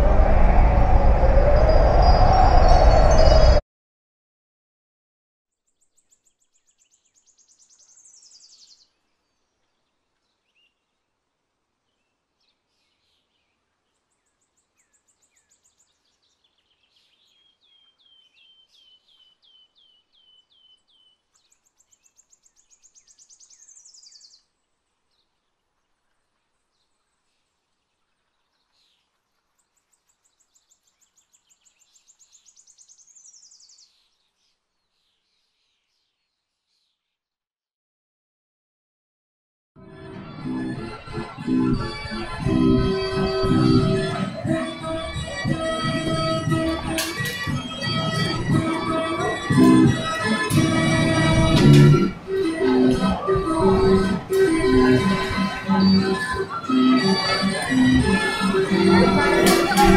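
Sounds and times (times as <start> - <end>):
songbird singing: 5.5 - 11.1, 11.8 - 37.2
low background hiss: 5.6 - 18.2.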